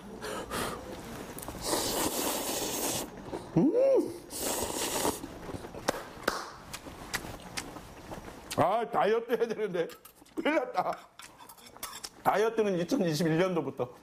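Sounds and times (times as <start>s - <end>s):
man slurping noodles: 1.6s - 3.2s, 4.3s - 5.3s.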